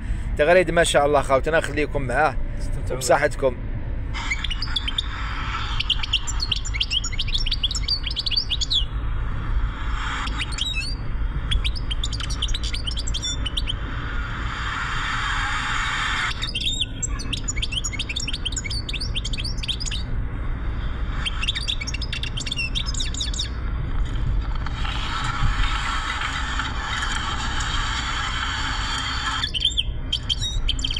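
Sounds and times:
moving car rumble: 0.0s - 30.9s
bird twittering song: 4.2s - 8.9s, 10.1s - 13.8s, 16.3s - 20.1s, 21.1s - 23.6s, 29.4s - 30.9s.

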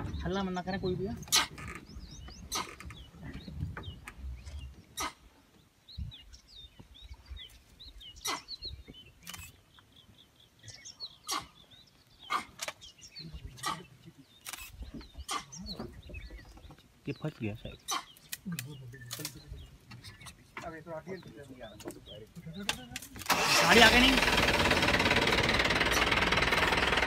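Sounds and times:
birds chirping and calling: 0.0s - 27.0s
short sharp bird calls: 4.9s - 5.4s, 8.1s - 9.6s, 10.7s - 15.8s.

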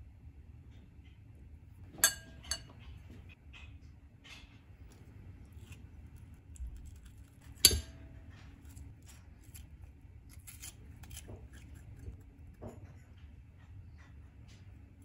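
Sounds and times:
spoon clinking glass bowl: 2.0s - 2.8s.

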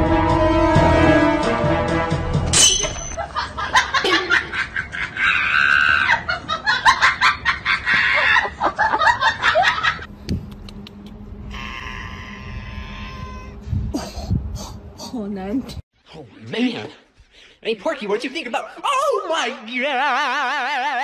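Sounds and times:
music: 0.0s - 2.6s
people laughing and shrieking: 3.4s - 10.0s.

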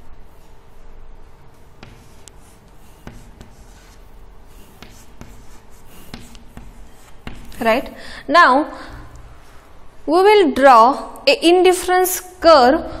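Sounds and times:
chalk scratching on chalkboard: 1.6s - 8.0s
chalk clicking on board: 1.7s - 7.9s.

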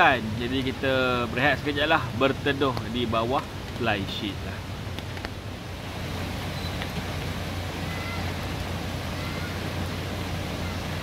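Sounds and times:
rain on a tarp: 0.0s - 11.0s
faint high chirps: 6.5s - 6.8s, 7.8s - 8.4s.

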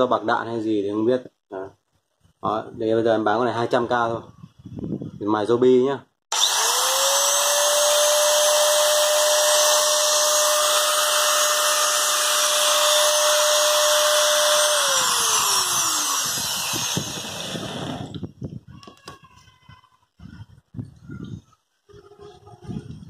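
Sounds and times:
angle grinder whining: 6.3s - 18.3s.

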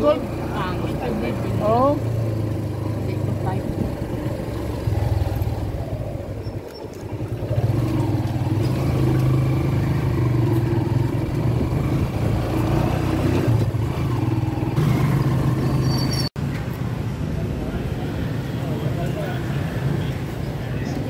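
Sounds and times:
motorcycle engine running: 0.0s - 15.8s.

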